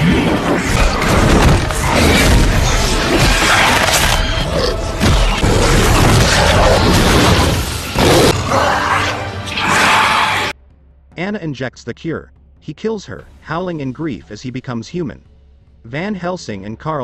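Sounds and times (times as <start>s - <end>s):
loud action music: 0.0s - 11.7s
crashes and booms: 4.9s - 8.4s.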